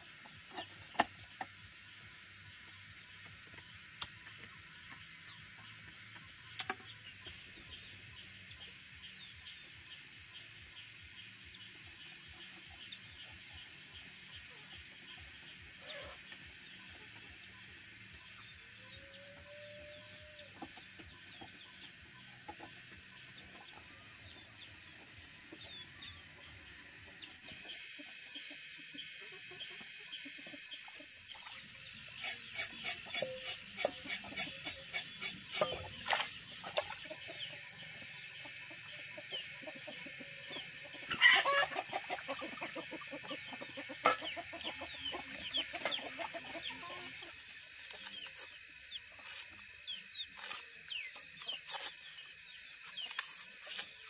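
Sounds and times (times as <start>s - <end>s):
high-pitched insect drone: 0.0s - 54.0s
chickens clucking: 20.5s - 52.1s.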